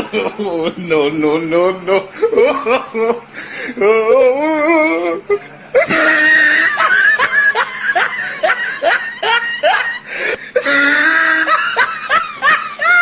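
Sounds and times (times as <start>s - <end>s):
person laughing: 0.0s - 13.0s
high drawn-out cry: 5.8s - 13.0s.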